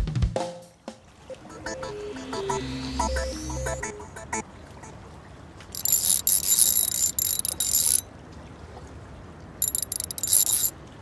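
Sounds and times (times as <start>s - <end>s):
fishing reel whirring and clicking: 5.8s - 8.0s, 9.6s - 10.7s.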